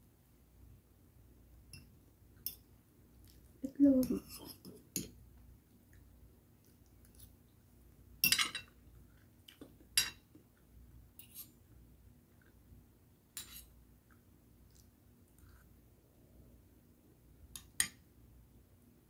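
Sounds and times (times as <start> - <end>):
cutlery clinking on plate: 8.2 - 8.7.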